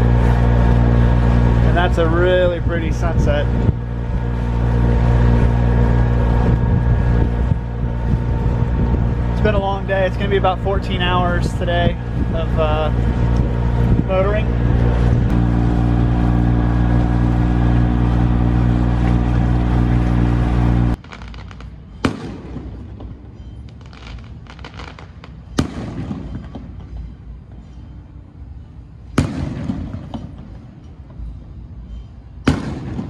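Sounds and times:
boat diesel engine running: 0.0s - 21.0s
firework bangs: 0.0s - 27.0s, 29.2s - 30.6s, 32.5s - 33.0s
fireworks crackling: 0.0s - 27.0s.

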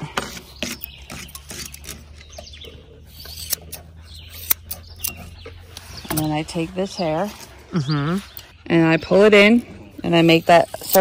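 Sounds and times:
grooming shears snipping: 0.0s - 8.5s, 9.1s - 11.0s
metal comb through fur: 10.1s - 11.0s.

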